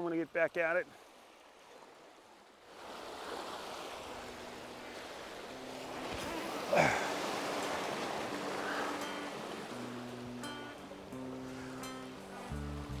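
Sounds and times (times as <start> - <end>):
waves washing over rocks: 2.7 - 10.3.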